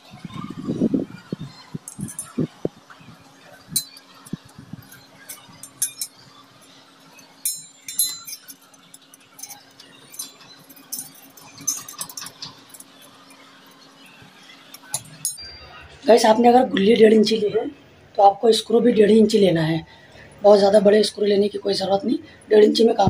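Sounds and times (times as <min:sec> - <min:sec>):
screwdriver clicking on metal: 0:07.4 - 0:12.9.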